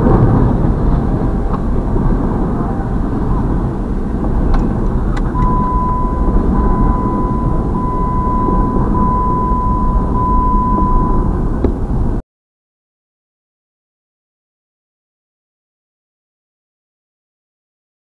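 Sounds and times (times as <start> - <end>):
train wheels rumbling on rails: 0.0 - 12.2
steady high tone: 0.9 - 4.0, 5.3 - 11.5.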